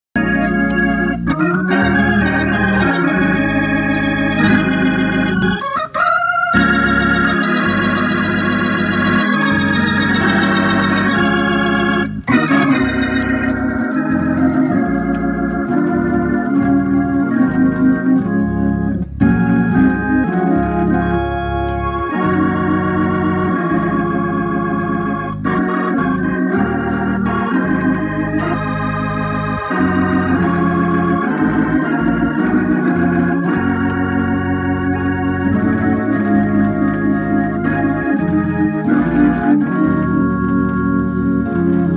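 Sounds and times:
organ chords and melody: 0.0 - 41.9.

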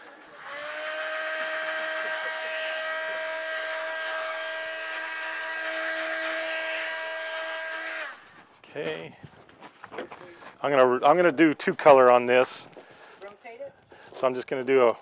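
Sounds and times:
heat gun fan whine: 0.1 - 8.3.

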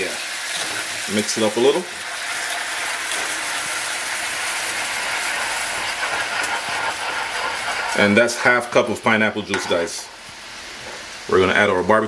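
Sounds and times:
sugary liquid boiling and sizzling: 0.0 - 12.0
wooden spoon stirring: 2.8 - 10.0.

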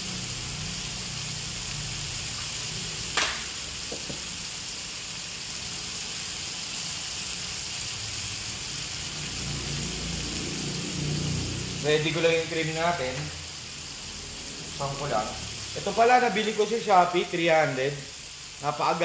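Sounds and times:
chicken sizzling in oil: 0.0 - 19.0
sharp oil pop: 3.2 - 4.2.

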